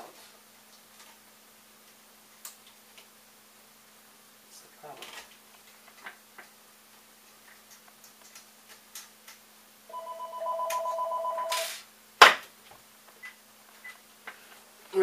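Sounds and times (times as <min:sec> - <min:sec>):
telephone ringing with warbling trill: 0:09.9 - 0:11.8.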